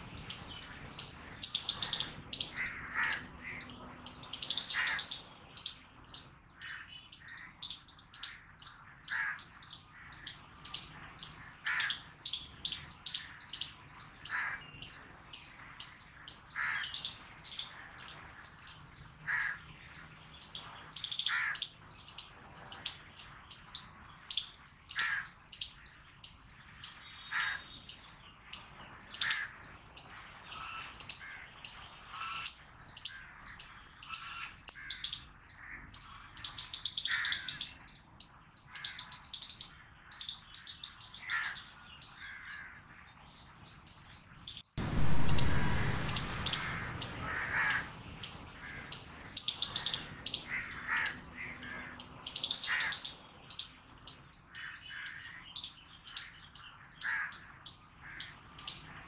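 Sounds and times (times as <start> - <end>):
chipmunk chirping: 0.1 - 19.6, 20.4 - 42.7, 43.7 - 58.9
low rumbling noise: 44.8 - 50.5
lower animal calls: 44.8 - 53.2.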